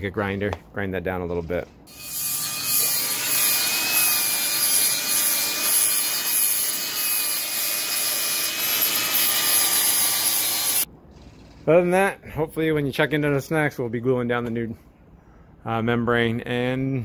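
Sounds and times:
grinder grinding wood: 0:01.9 - 0:10.9.

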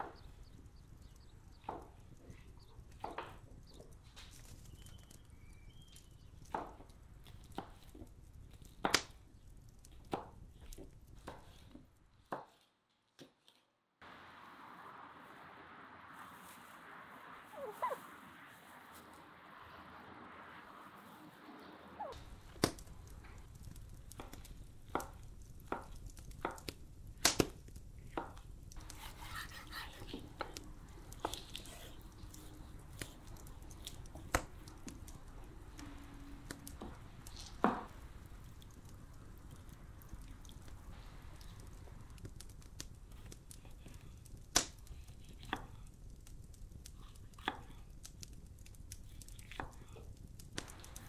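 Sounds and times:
steady outdoor hiss: 0:14.0 - 0:51.0
knife slicing raw meat: 0:28.9 - 0:30.2.

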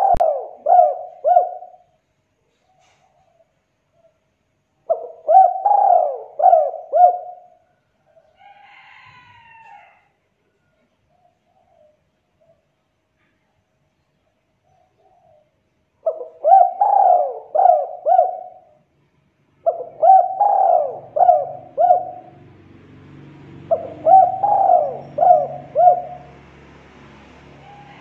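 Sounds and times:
dove cooing: 0:00.0 - 0:02.0, 0:04.9 - 0:08.3, 0:14.8 - 0:18.9, 0:19.6 - 0:22.6, 0:23.5 - 0:26.5.

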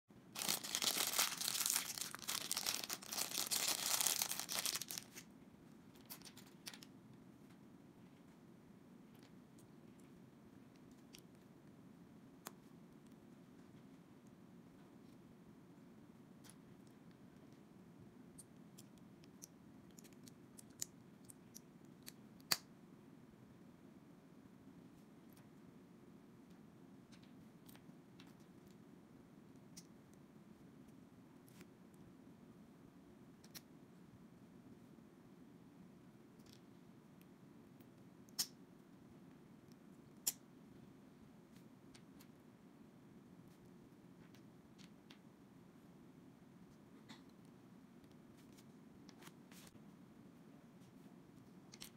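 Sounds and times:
plastic bag tearing and crinkling: 0:00.4 - 0:05.2.

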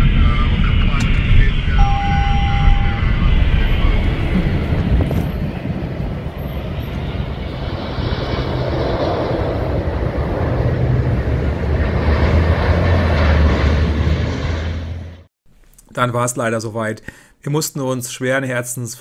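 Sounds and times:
jet aircraft flying over: 0:00.0 - 0:15.3.

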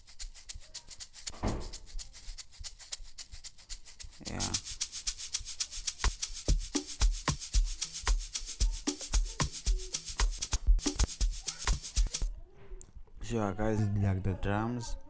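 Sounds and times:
shaker loop: 0:00.0 - 0:12.3
kick drum thumps: 0:06.5 - 0:12.2.

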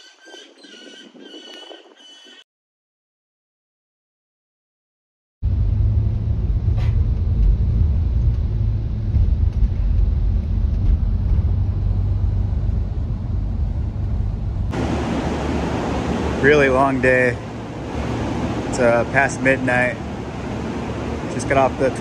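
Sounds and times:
road vehicle engine and road noise: 0:05.4 - 0:22.0.

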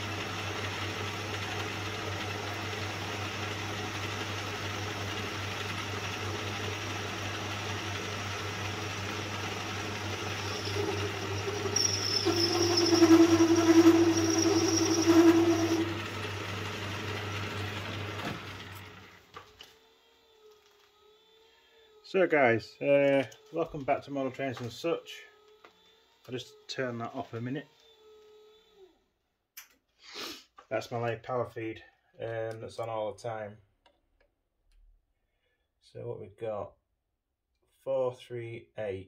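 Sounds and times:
metal lathe motor hum: 0:00.0 - 0:19.1
cutting tool whine: 0:00.0 - 0:28.8.

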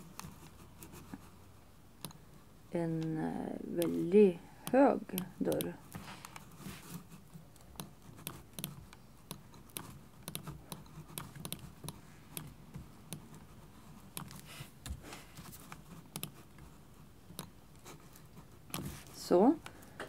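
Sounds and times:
computer keyboard and mouse clicks: 0:03.7 - 0:06.5, 0:07.5 - 0:13.4, 0:14.1 - 0:15.0, 0:15.7 - 0:16.6.

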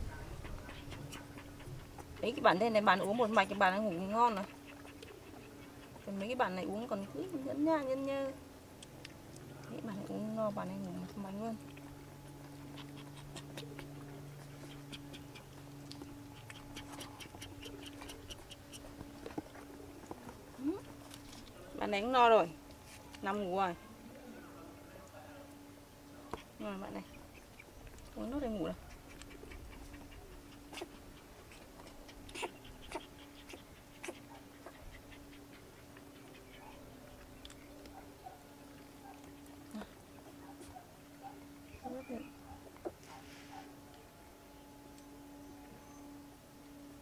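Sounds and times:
faint steady hum: 0:00.0 - 0:47.0
puppy suckling from bottle: 0:00.2 - 0:06.2, 0:11.6 - 0:21.5, 0:28.7 - 0:37.6.

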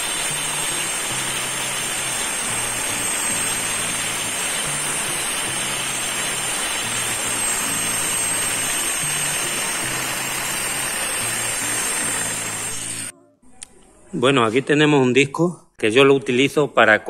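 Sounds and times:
angle grinder cutting wood: 0:00.0 - 0:13.1.

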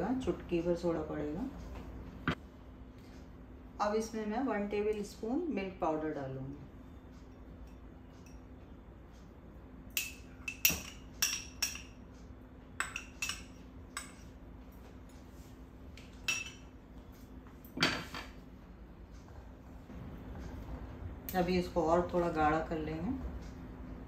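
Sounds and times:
metal spoon clinking: 0:12.8 - 0:14.3, 0:16.3 - 0:16.6.

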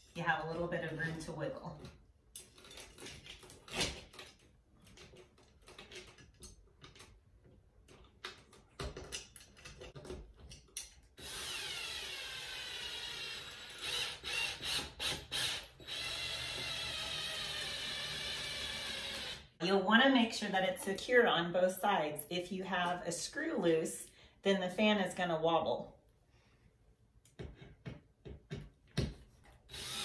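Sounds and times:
cordless drill motor whining: 0:11.2 - 0:19.6, 0:29.7 - 0:30.0.

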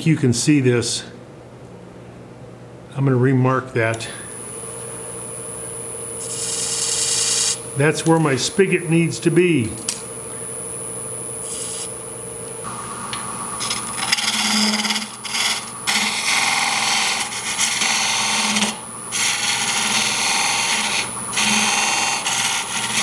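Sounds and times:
turning tool cutting wood: 0:06.2 - 0:07.6, 0:13.6 - 0:23.0
wood lathe running: 0:06.2 - 0:07.6, 0:13.6 - 0:23.0.

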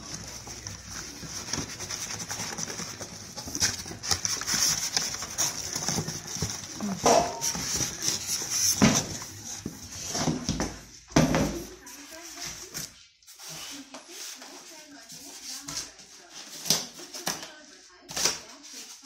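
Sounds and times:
scrapes and knocks: 0:00.0 - 0:12.9
plastic and cardboard crinkling: 0:00.0 - 0:19.0.

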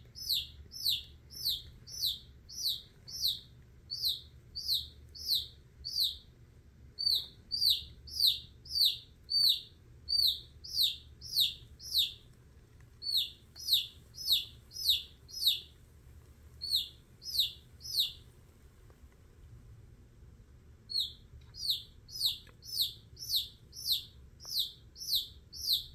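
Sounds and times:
chick peeping in distress: 0:00.2 - 0:06.3, 0:07.0 - 0:12.2, 0:13.0 - 0:15.7, 0:16.6 - 0:18.2, 0:20.9 - 0:25.9.

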